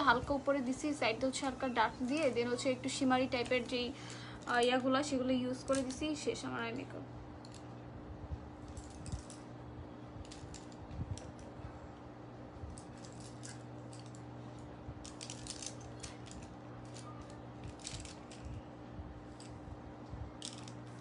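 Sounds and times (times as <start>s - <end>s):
steady low hum: 0.0s - 21.0s
makeup clicks and rustles: 1.3s - 6.3s, 8.6s - 9.4s, 15.0s - 18.6s.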